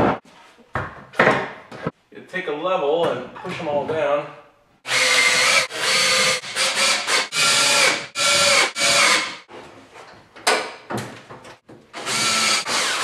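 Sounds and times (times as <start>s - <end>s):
cordless drill driving screws: 4.9s - 9.4s, 12.0s - 13.0s.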